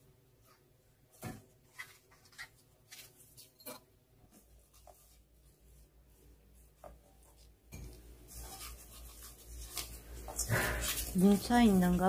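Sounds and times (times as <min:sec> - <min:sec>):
hands squishing greens in bowl: 0:04.3 - 0:12.0.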